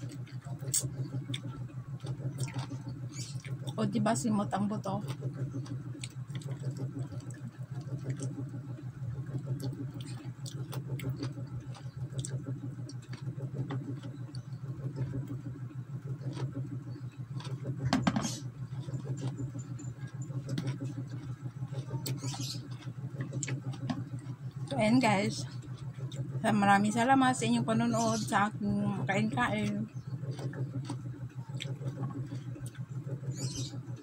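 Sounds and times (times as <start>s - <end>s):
person chewing food: 0.0s - 3.8s, 5.0s - 24.7s, 30.1s - 33.2s
steady low hum: 0.0s - 34.0s.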